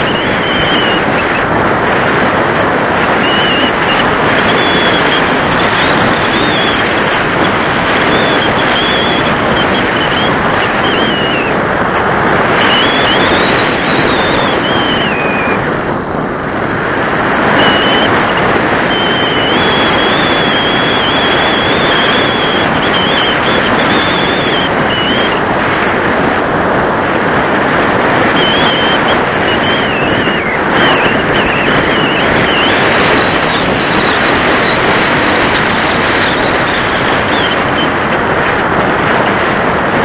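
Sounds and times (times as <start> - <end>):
thin high whistle: 0.0 - 1.4, 3.2 - 6.8, 7.4 - 11.5, 12.6 - 15.6, 17.6 - 25.4, 28.4 - 37.9
airflow rushing over microphone: 0.0 - 40.0.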